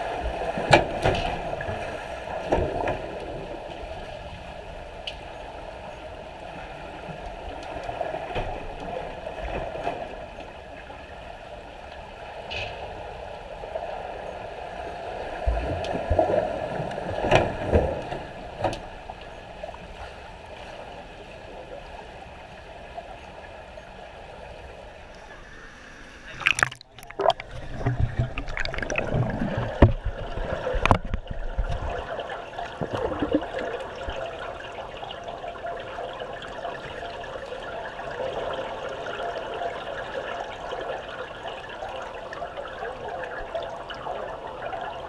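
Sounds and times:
underwater swimming strokes and bubbles: 0.0s - 45.0s.

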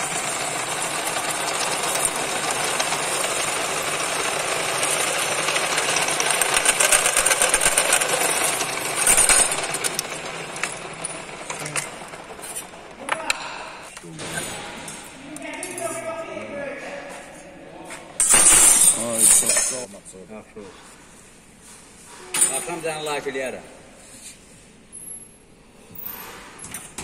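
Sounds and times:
drill press cutting metal: 0.0s - 13.0s
sharp metal clank: 18.2s - 19.9s.

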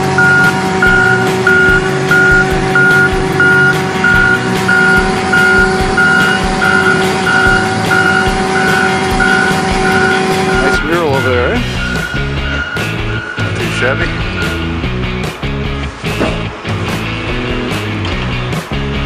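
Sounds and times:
backup alarm beeping: 0.0s - 14.8s
loader engine running: 0.0s - 19.0s.

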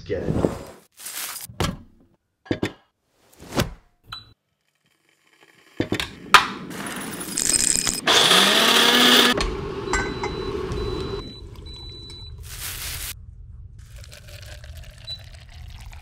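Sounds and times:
electric coffee grinder whirring: 6.8s - 9.8s
glass clinking on a scale: 9.9s - 10.4s.

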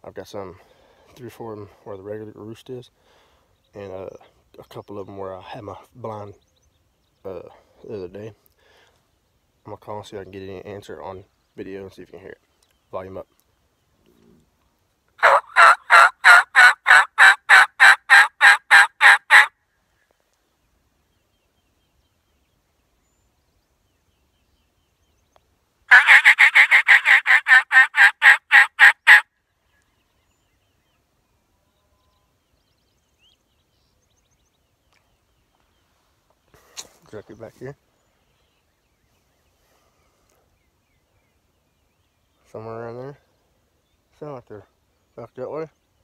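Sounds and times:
turkey mouth call notes: 15.2s - 19.5s, 25.9s - 29.2s.

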